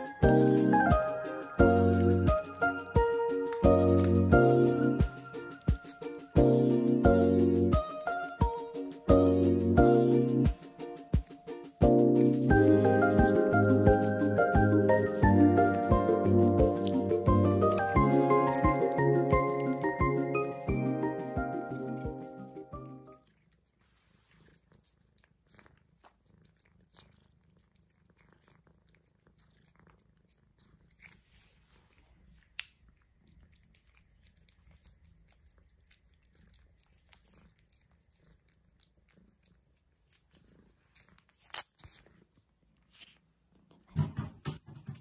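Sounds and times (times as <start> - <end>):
cats licking wet clicks: 0.0 - 7.6, 10.0 - 43.2
music: 0.0 - 23.2.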